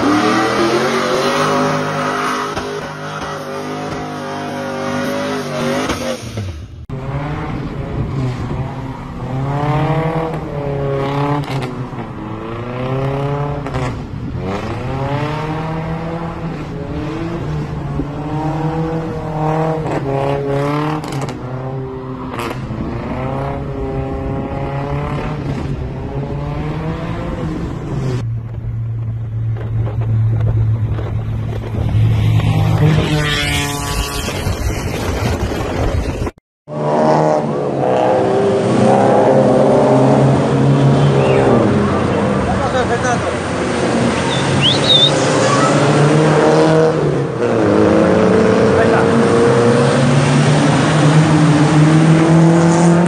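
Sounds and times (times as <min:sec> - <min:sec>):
second truck engine: 0:44.2 - 0:45.8.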